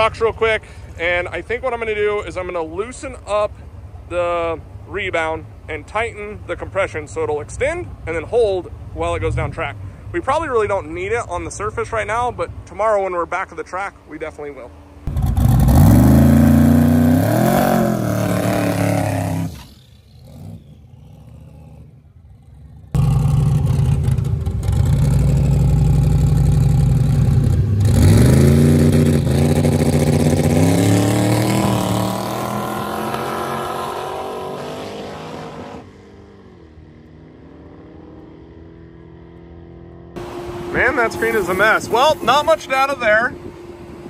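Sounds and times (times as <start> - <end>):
engine on rev limiter: 15.0 - 44.0
drag car engine revving: 15.1 - 39.4, 40.2 - 44.0
car accelerating away: 15.1 - 42.3.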